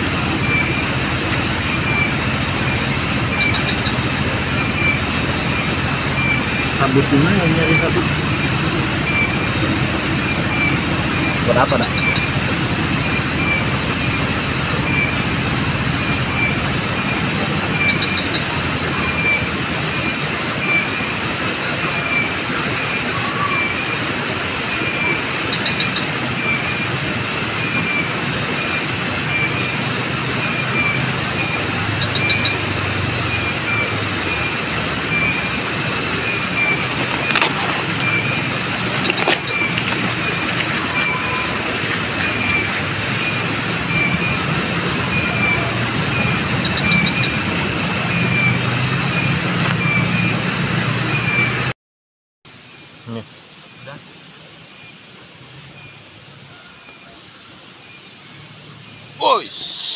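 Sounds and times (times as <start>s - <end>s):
insects droning: 0.0s - 51.6s.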